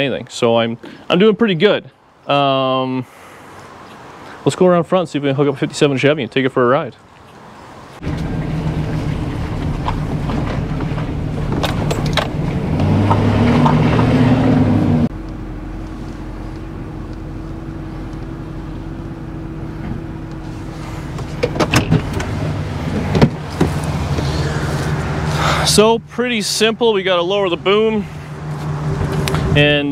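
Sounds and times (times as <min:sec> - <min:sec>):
pickup truck engine: 0:08.0 - 0:29.9.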